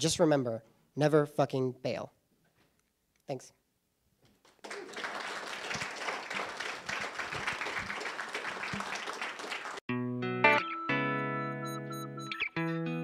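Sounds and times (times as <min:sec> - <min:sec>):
audience applauding: 0:04.4 - 0:09.9
electric guitar music: 0:09.9 - 0:13.0.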